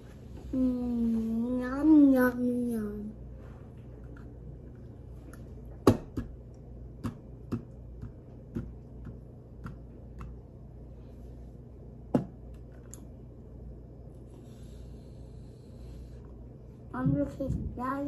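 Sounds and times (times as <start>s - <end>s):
taps and knocks on table: 12.1s - 12.4s.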